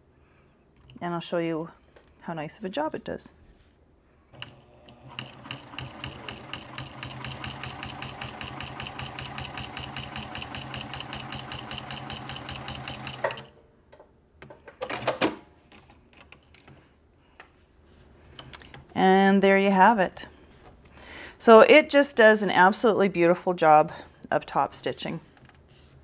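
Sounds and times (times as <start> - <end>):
sewing machine stitching: 4.4 - 13.5.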